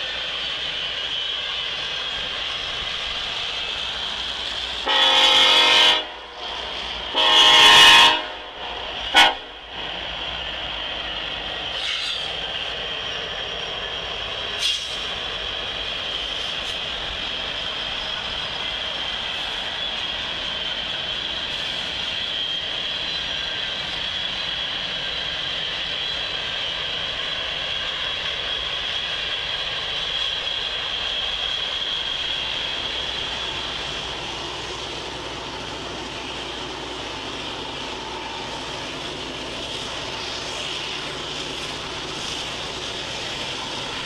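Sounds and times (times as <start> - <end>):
locomotive air horn blasts: 4.8 - 6.2, 7.1 - 8.5, 9.1 - 9.5.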